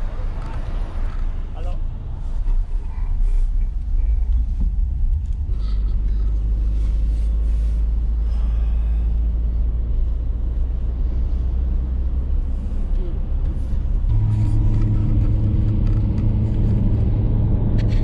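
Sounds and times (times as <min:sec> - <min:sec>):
road and engine rumble: 0:00.0 - 0:18.0.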